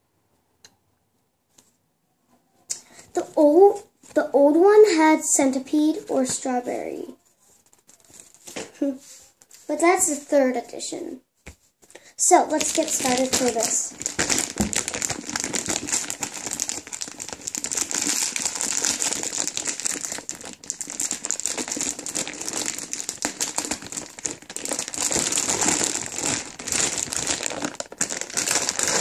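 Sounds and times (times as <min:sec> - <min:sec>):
plastic packaging crinkling: 0:07.4 - 0:08.7, 0:12.2 - 0:29.0.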